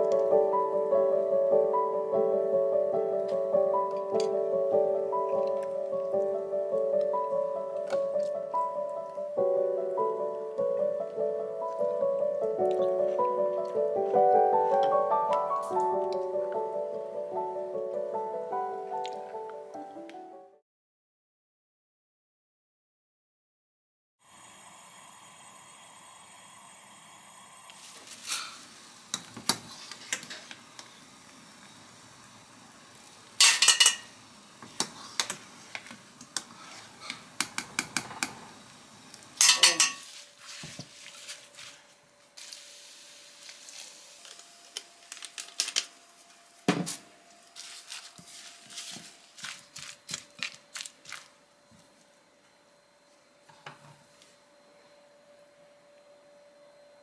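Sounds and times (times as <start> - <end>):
utensils and dishes clinking: 33.4 - 34.2, 39.4 - 40.2.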